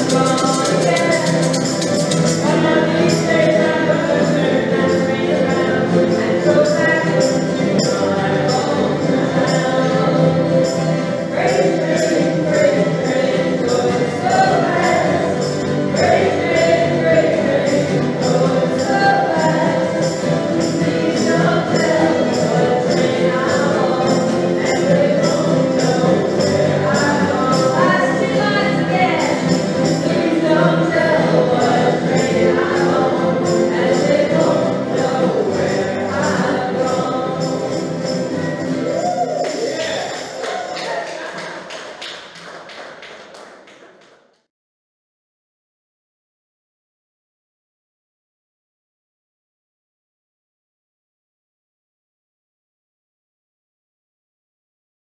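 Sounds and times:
acoustic guitars strummed: 0:00.0 - 0:41.2
group singing in unison: 0:00.0 - 0:41.7
tambourine shaking: 0:00.0 - 0:43.0.

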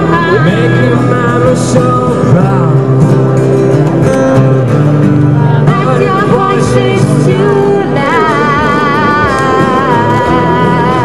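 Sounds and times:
person singing: 0:00.0 - 0:03.1, 0:05.6 - 0:11.0
acoustic guitar: 0:00.0 - 0:11.0.

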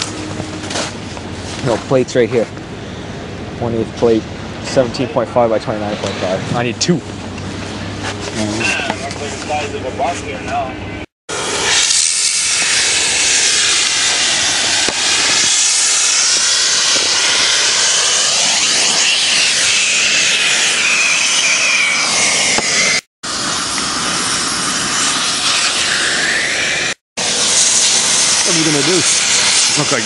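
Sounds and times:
cutting torch gas jet hissing: 0:00.0 - 0:01.7, 0:11.3 - 0:30.0.

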